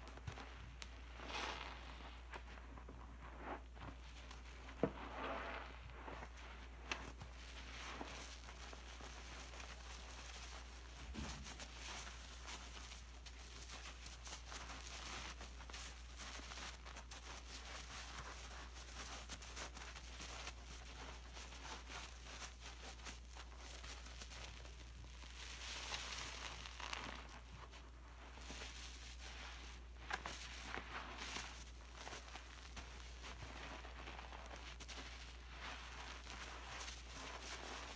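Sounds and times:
sponge squelching: 0:00.1 - 0:37.9
crackle of bubbles: 0:24.2 - 0:27.7.

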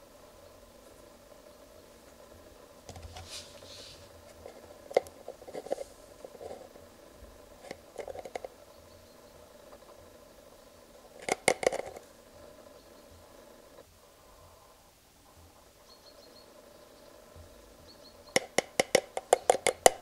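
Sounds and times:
soft plastic rustle: 0:02.9 - 0:06.7
plastic cap clicks and taps: 0:11.2 - 0:12.0, 0:18.4 - 0:20.0.

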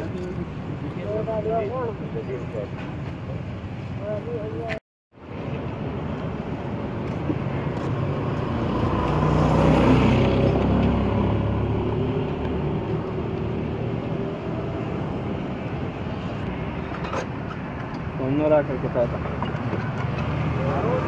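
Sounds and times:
traffic hum: 0:00.0 - 0:21.0
vehicle engine passing: 0:07.7 - 0:15.3.

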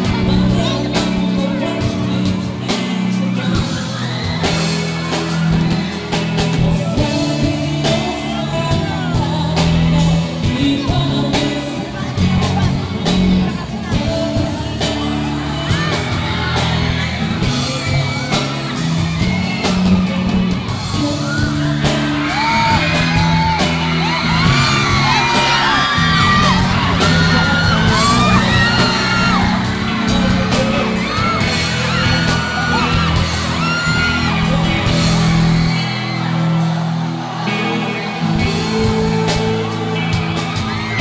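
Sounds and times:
man singing: 0:00.0 - 0:36.3, 0:37.4 - 0:41.0
live band music: 0:00.0 - 0:41.0
high rising and falling whoops: 0:15.8 - 0:38.7.

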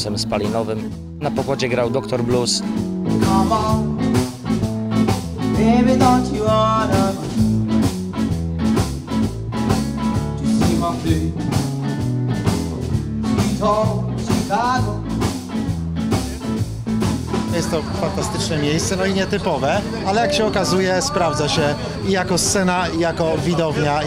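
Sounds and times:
acoustic guitar: 0:00.0 - 0:24.0
upright bass: 0:00.0 - 0:24.0.

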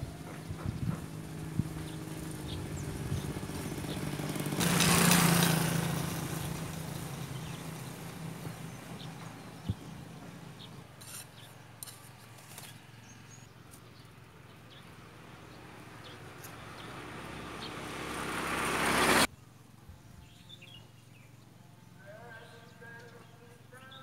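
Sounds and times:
vehicle approaching on road: 0:00.0 - 0:11.7, 0:12.7 - 0:19.3.

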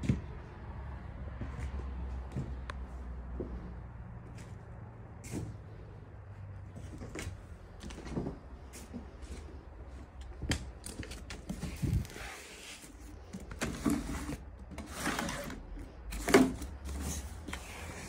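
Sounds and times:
footsteps: 0:00.0 - 0:13.4.

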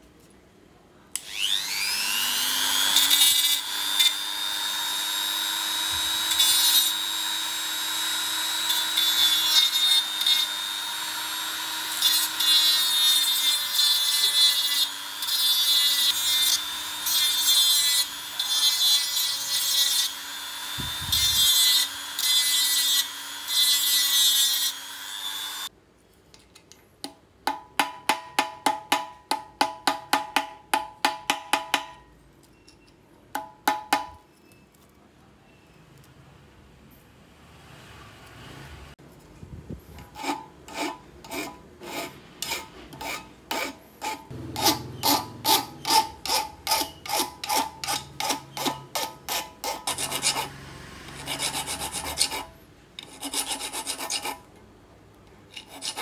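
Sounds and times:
rotary grinder whine: 0:01.2 - 0:23.8
grinding stone rasping metal: 0:01.3 - 0:25.7, 0:40.0 - 0:54.5, 0:55.5 - 0:56.0.

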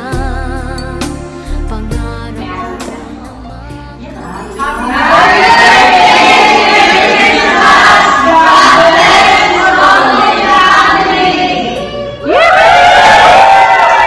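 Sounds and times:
group of people singing: 0:01.8 - 0:14.0
loud group shout: 0:04.7 - 0:14.0.

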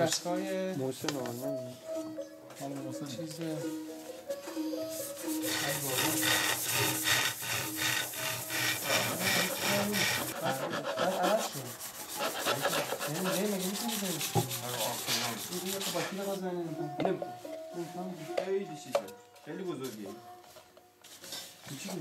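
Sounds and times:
steel blade scraping wood: 0:05.0 - 0:16.2.

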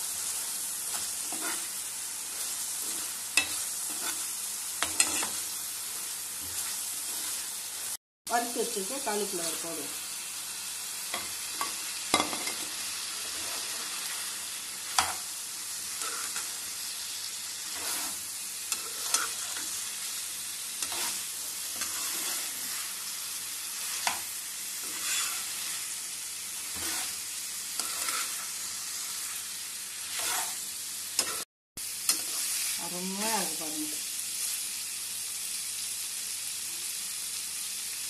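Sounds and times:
food sizzling in frying pan: 0:00.0 - 0:38.0
spatula scraping and knocking pan: 0:00.9 - 0:05.5, 0:11.1 - 0:14.2, 0:14.9 - 0:15.3, 0:15.9 - 0:16.6, 0:17.6 - 0:19.8, 0:20.8 - 0:22.9, 0:23.8 - 0:25.8, 0:26.6 - 0:28.6, 0:30.0 - 0:30.6.

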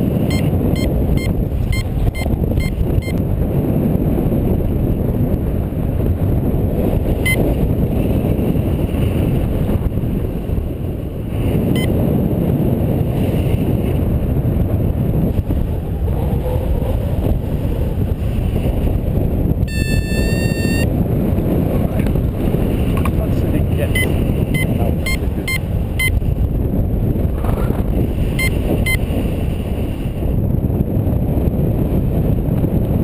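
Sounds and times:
wind buffeting microphone: 0:00.0 - 0:33.0
high electronic tone: 0:00.3 - 0:03.2, 0:19.7 - 0:20.9, 0:23.9 - 0:26.2, 0:28.4 - 0:29.0.

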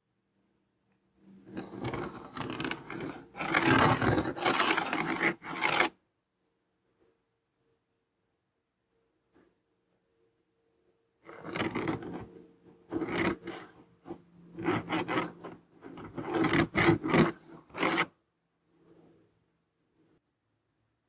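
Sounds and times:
scraping on fibreglass: 0:01.5 - 0:05.9, 0:11.3 - 0:12.3, 0:12.9 - 0:18.1.

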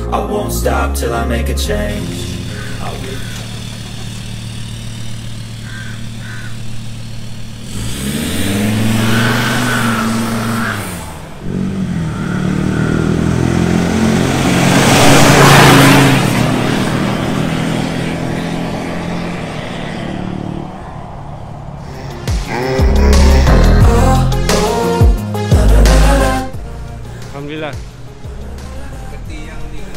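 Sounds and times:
pickup truck engine revving: 0:01.2 - 0:25.0.

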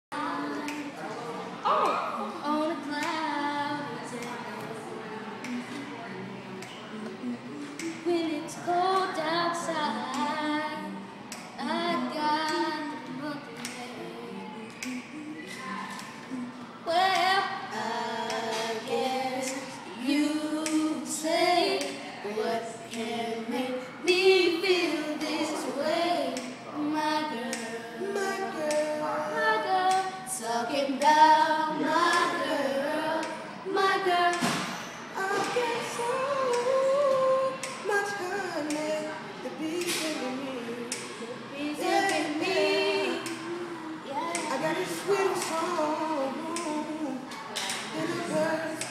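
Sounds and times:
boys singing: 0:00.1 - 0:48.9.

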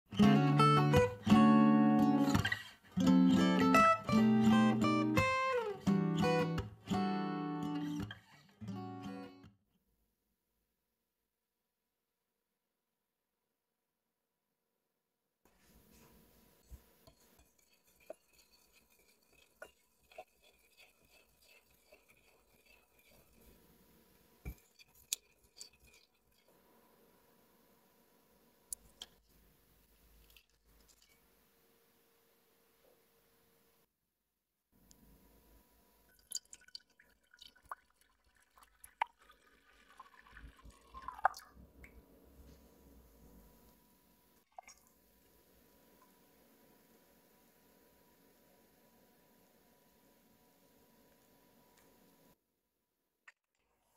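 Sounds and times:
metal whisk clinking on glass bowl: 0:17.1 - 0:23.5
milk pouring into metal bowl: 0:17.1 - 0:26.6, 0:36.1 - 0:42.0, 0:44.4 - 0:45.0.

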